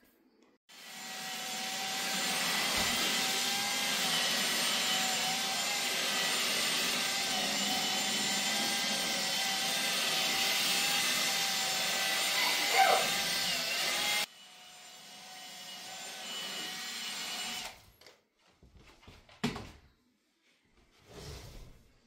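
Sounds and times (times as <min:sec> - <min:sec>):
drill motor whine: 0:00.7 - 0:17.8.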